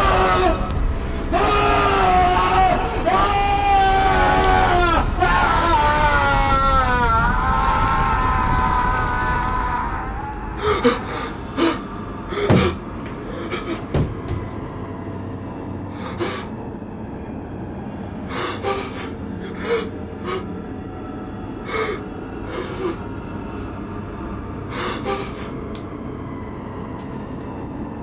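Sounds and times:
low rumbling drone: 0.0s - 28.0s
man gasping for breath: 10.6s - 14.0s, 16.0s - 16.5s, 18.3s - 20.5s, 24.7s - 25.6s.

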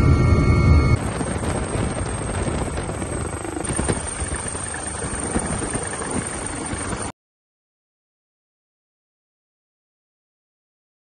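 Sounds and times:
helicopter rotor and engine: 0.0s - 7.1s.

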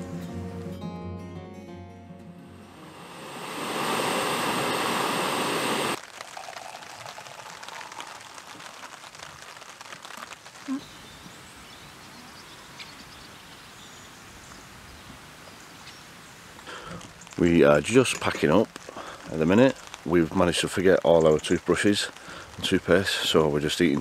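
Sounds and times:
faint outdoor ambience: 2.2s - 24.0s
loud steady sound: 2.5s - 6.0s.

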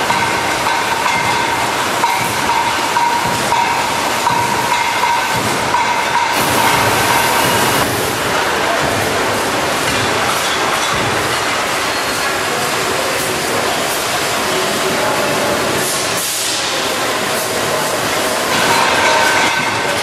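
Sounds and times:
factory machinery running: 0.0s - 20.0s
conveyor rattling: 6.2s - 8.8s
thin machine whine: 6.3s - 8.4s.

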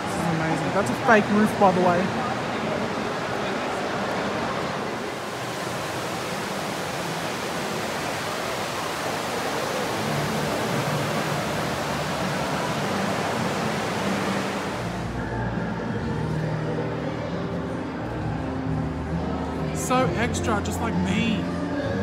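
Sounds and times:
fountain water splashing: 0.0s - 15.8s.

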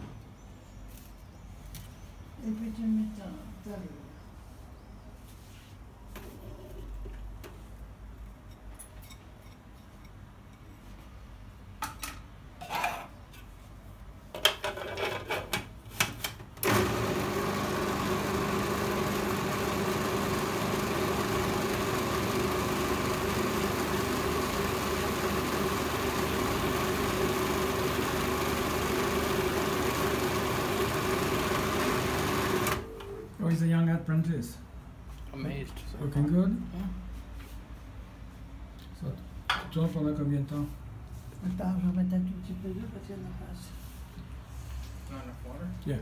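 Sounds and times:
electric kitchen mixer running: 16.6s - 32.9s.

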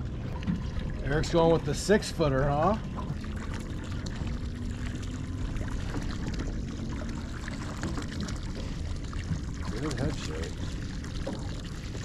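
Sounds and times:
small splashes: 0.0s - 12.0s
water lapping against boat hull: 0.0s - 12.0s.

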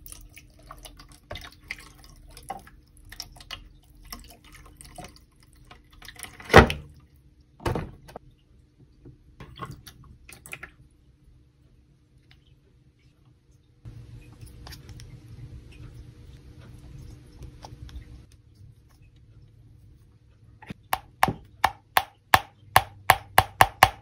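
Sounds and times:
water trickling and dripping: 0.0s - 7.2s.

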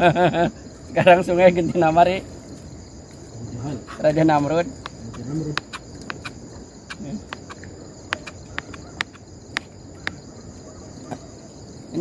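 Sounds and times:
night insects chirring: 0.0s - 12.0s.

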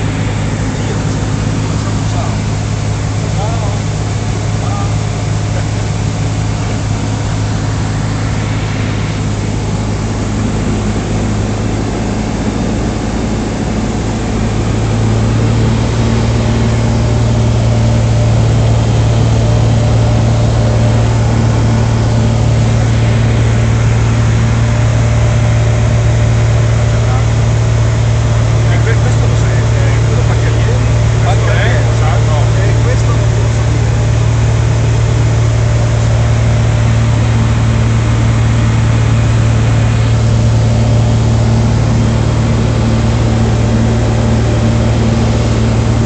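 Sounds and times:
light aircraft engine droning: 0.0s - 46.0s.

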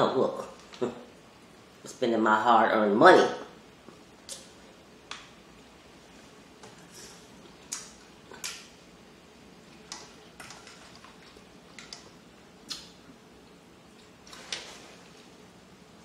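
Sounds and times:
crab legs cracking and smacking: 7.6s - 8.7s, 9.8s - 13.0s.

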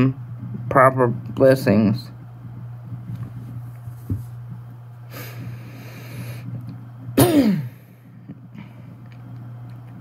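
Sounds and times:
steady low hum: 0.0s - 10.0s
man breathing in: 5.1s - 6.6s.

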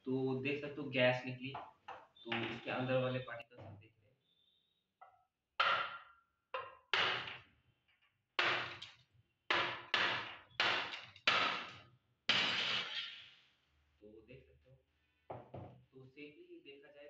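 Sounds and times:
glass cracking: 12.3s - 13.3s.

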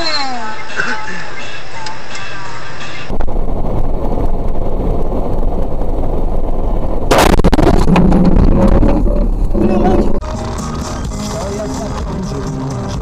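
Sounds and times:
vehicle road and engine rumble: 0.0s - 13.0s
heavy crash impact: 7.1s - 8.8s.

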